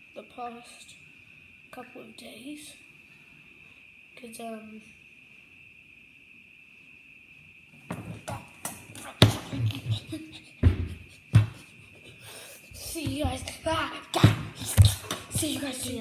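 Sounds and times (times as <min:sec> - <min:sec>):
faint high-pitched tone: 0:00.0 - 0:09.8, 0:12.3 - 0:16.0
handling knocks and thumps: 0:07.9 - 0:11.7, 0:12.7 - 0:16.0.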